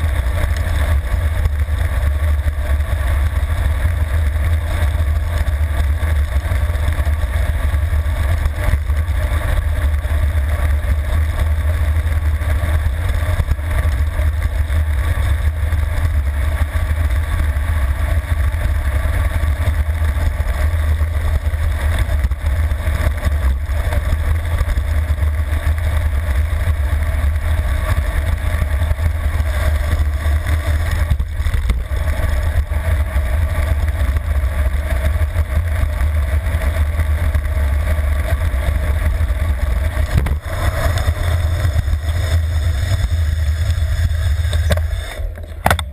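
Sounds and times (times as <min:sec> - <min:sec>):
wind rumbling over microphone: 0:00.0 - 0:45.9.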